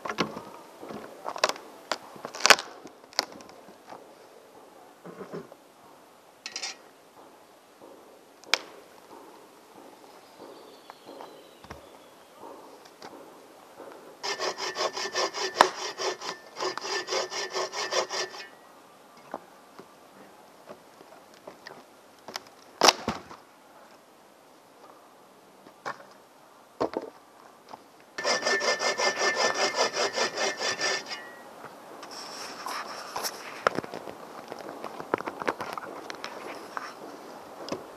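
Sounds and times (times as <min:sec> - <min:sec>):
hand saw cutting branch: 0:14.2 - 0:18.6, 0:28.2 - 0:31.4.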